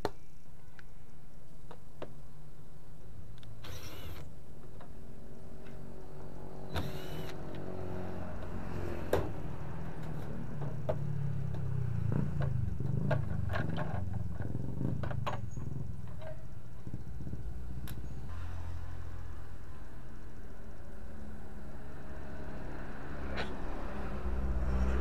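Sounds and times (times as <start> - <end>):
steady low hum: 0.1 - 25.0
cordless drill whirring: 3.6 - 4.3, 6.7 - 7.4.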